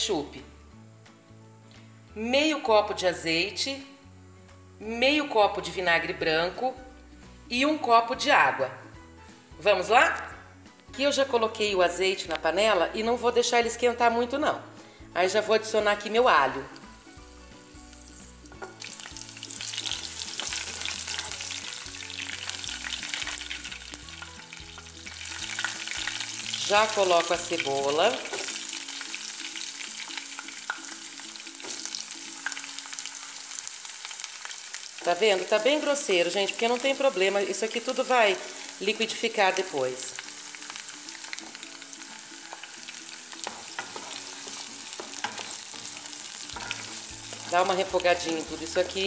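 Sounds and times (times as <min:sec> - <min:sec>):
garlic sizzling in hot oil: 0:14.8 - 0:49.0
wooden spoon stirring pan: 0:42.4 - 0:49.0.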